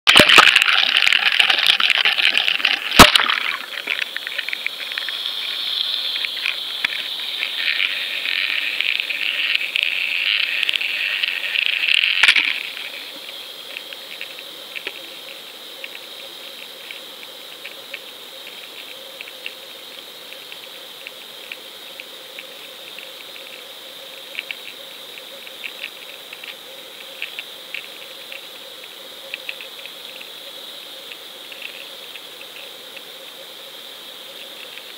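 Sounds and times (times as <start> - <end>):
rushing water and bubbles: 0.1 - 23.6
small ticks and clicks: 0.1 - 33.3, 34.3 - 34.9.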